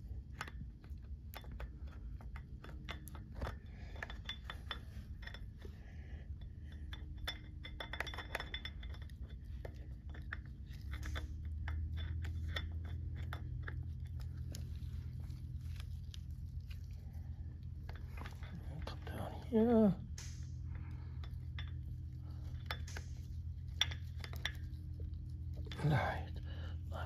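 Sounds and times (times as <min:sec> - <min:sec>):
steady low hum: 0:00.0 - 0:27.0
gloved hands clicking and tapping: 0:20.1 - 0:20.9.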